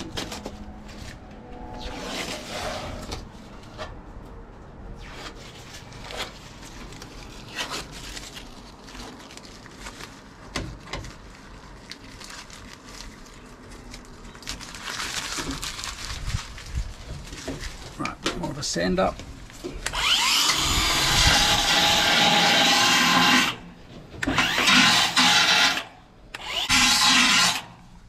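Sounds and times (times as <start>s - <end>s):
tape peeling and crinkling: 0.0s - 18.2s.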